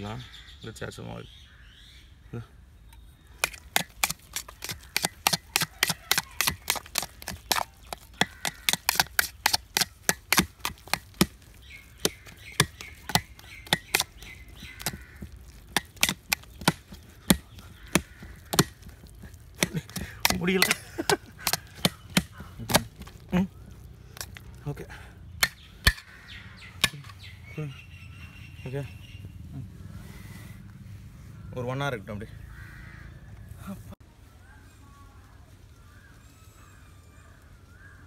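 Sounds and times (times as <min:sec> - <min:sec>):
stick slapping dough in bowl: 0:03.4 - 0:23.4, 0:24.2 - 0:24.6.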